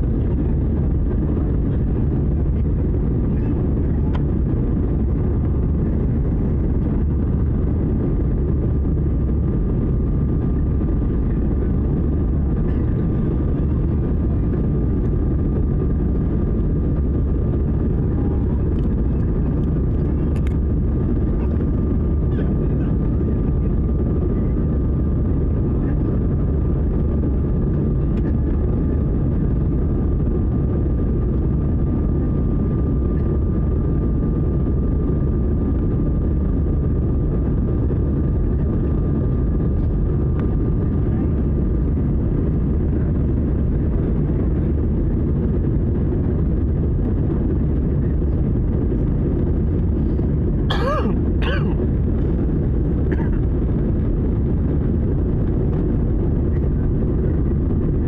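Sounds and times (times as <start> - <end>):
jet engine and airflow roar: 0.0 - 58.0.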